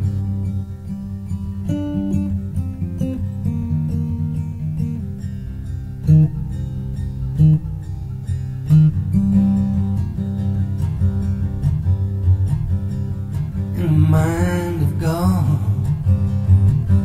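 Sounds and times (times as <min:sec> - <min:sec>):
acoustic guitar strummed: 0:00.0 - 0:17.0.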